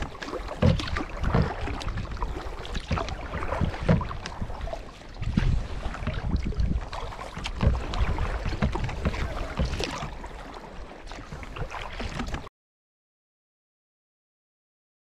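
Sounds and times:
wind rumble on microphone: 0:00.0 - 0:10.2
paddle splashes and drips: 0:00.0 - 0:12.5.

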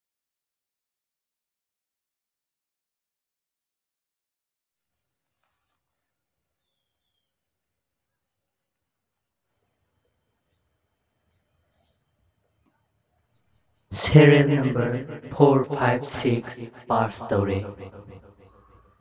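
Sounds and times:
faint bird chirps: 0:04.8 - 0:14.9, 0:17.5 - 0:19.0
faint high insect drone: 0:04.8 - 0:19.0.

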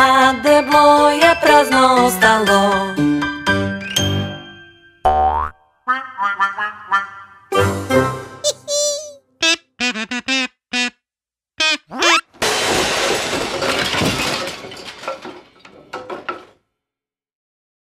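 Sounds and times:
squeaky blips: 0:08.5 - 0:11.0, 0:11.6 - 0:12.3
crackling shattering burst: 0:12.4 - 0:15.7.

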